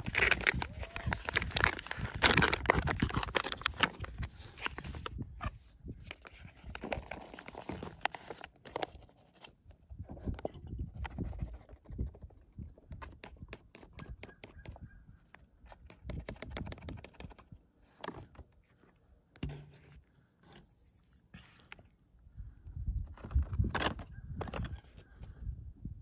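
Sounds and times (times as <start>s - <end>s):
foil pouch crinkling: 0.0s - 5.2s, 6.0s - 9.0s.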